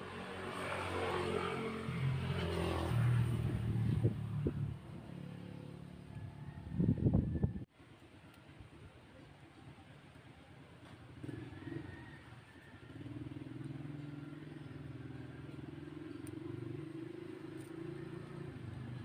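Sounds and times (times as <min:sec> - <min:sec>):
vehicle engine humming: 0:01.6 - 0:07.7.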